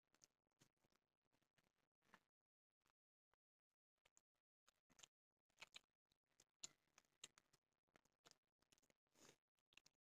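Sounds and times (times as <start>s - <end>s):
chewing: 4.0s - 10.0s.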